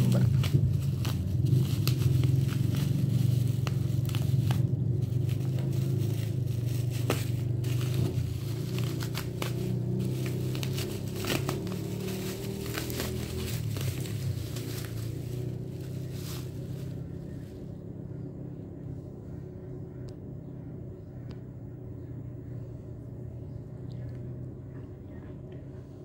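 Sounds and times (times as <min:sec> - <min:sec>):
bubble wrap crinkling and tearing: 0:00.0 - 0:17.2
steady low hum: 0:00.0 - 0:26.0.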